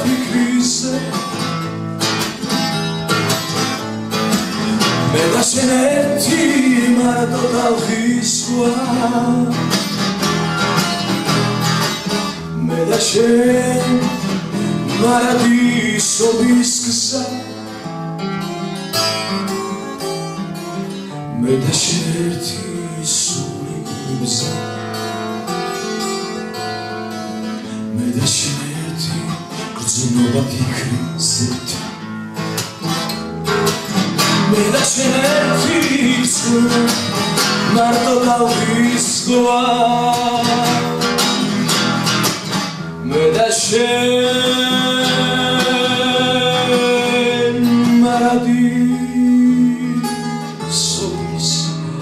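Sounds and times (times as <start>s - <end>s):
man singing into a microphone: 0.0s - 1.6s, 5.0s - 9.9s, 12.4s - 17.8s, 21.3s - 24.8s, 27.8s - 32.0s, 34.4s - 41.7s, 43.0s - 52.0s
acoustic guitar strumming: 0.0s - 52.0s.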